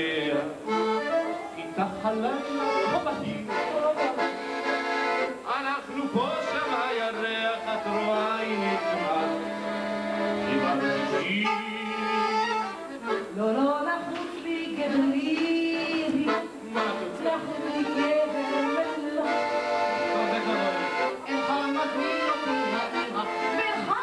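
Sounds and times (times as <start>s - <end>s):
man singing: 0.0s - 1.0s, 1.6s - 4.4s, 5.2s - 13.2s, 14.5s - 24.0s
instrumental accompaniment: 0.0s - 24.0s
woman singing: 1.1s - 4.5s, 13.1s - 19.9s, 21.4s - 24.0s.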